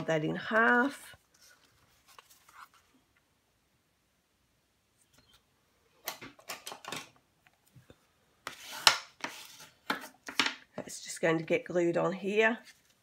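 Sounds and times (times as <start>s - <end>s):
bone folder scraping along cardstock: 8.4s - 10.4s.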